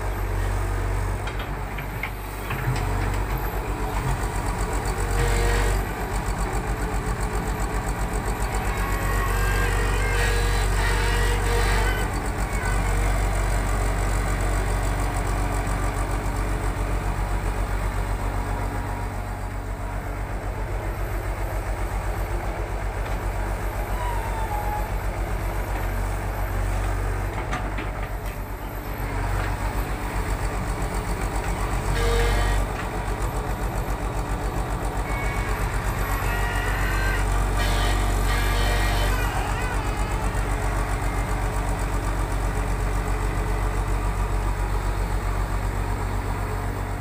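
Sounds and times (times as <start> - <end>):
excavator diesel engine rumbling: 0.0 - 47.0.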